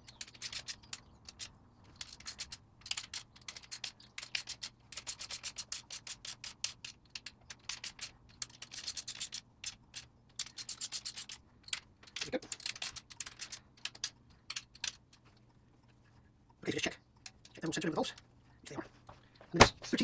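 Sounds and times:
hand ratchet clicking: 0:00.0 - 0:15.0.

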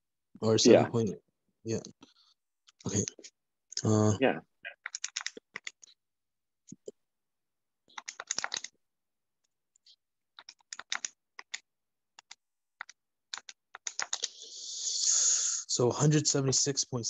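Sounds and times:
keyboard typing: 0:04.7 - 0:06.0, 0:07.9 - 0:08.8, 0:09.8 - 0:14.4
hiss: 0:14.4 - 0:15.7.

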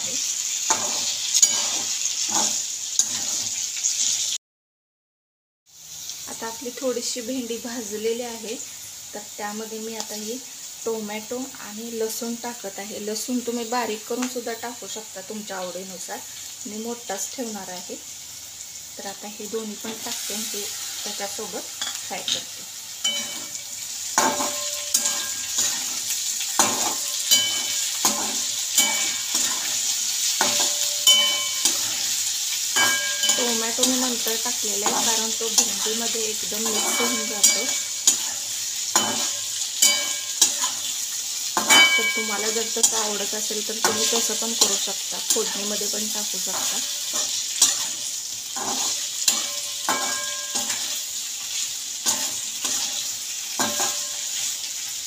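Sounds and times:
metal spatula scraping a pan: 0:00.0 - 0:04.3, 0:19.8 - 0:54.6
vegetables sizzling in hot oil: 0:00.0 - 0:04.4, 0:05.7 - 0:55.0.

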